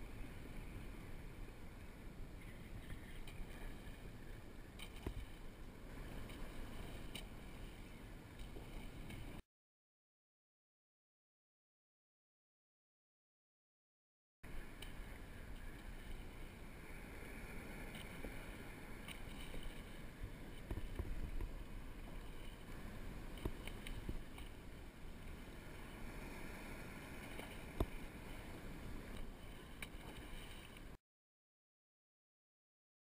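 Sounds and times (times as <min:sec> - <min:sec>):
water lapping against kayak hull: 0:00.1 - 0:09.4, 0:14.5 - 0:31.0.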